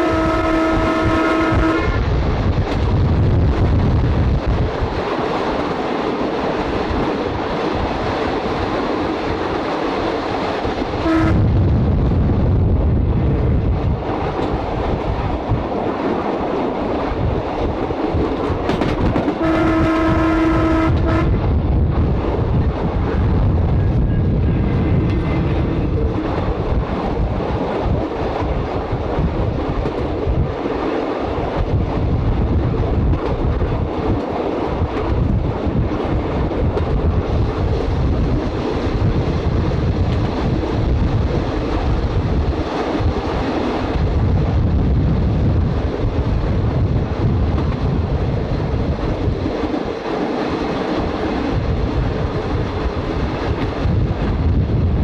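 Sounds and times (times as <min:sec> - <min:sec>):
railcar engine drone: 0:00.0 - 0:55.0
wind on microphone: 0:00.0 - 0:55.0
wheels running on rails: 0:20.9 - 0:55.0.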